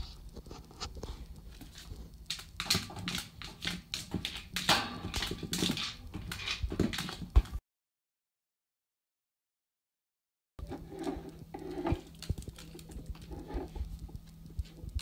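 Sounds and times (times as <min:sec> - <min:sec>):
claws and rubber on tiles: 0:00.0 - 0:07.6, 0:10.6 - 0:15.0.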